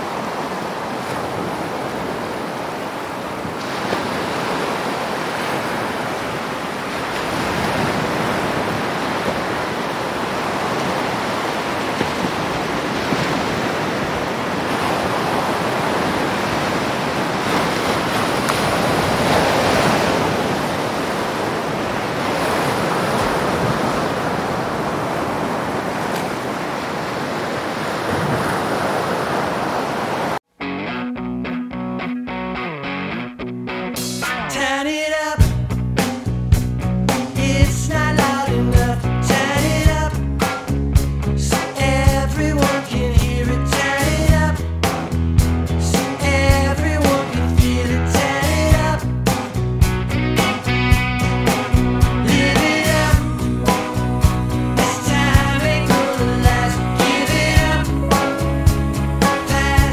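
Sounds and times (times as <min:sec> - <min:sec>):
water splashing against hull: 0:00.0 - 0:30.4.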